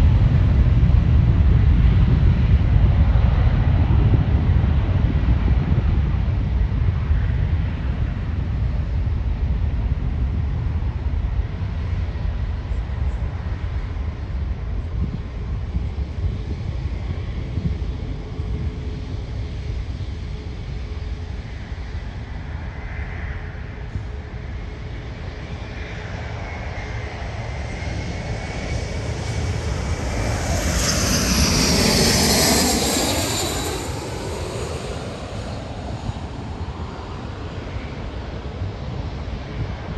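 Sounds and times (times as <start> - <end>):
distant jet engines rumbling: 0.0 - 39.9
wind buffeting microphone: 0.0 - 39.9
engine whine dropping in pitch: 28.5 - 36.1.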